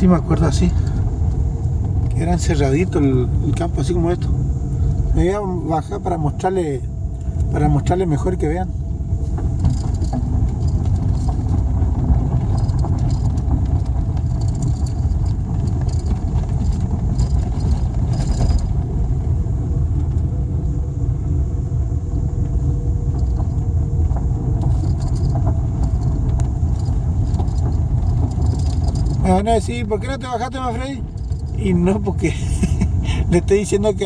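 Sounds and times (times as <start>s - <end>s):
car engine noise: 0.0s - 34.0s
tyres rumbling on gravel: 5.1s - 34.0s
small clicks and rattles: 9.3s - 19.1s, 22.4s - 31.7s.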